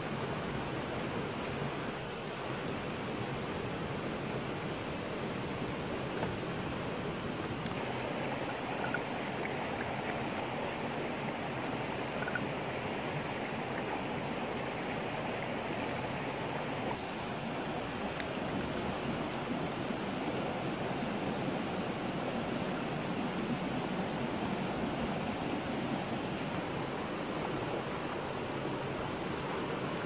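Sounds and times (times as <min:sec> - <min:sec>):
stream flowing over rocks: 0:00.0 - 0:30.0.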